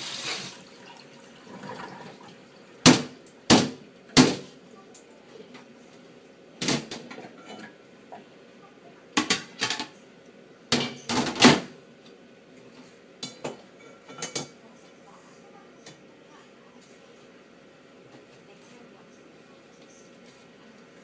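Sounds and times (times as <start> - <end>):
bowls clattering in steel sink: 6.6 - 7.8.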